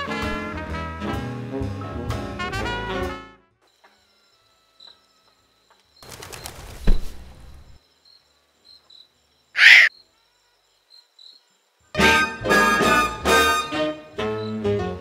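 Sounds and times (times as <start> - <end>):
wings flapping: 6.0 - 7.8
loud bird call: 9.6 - 9.9
faint high chirps: 9.6 - 11.5.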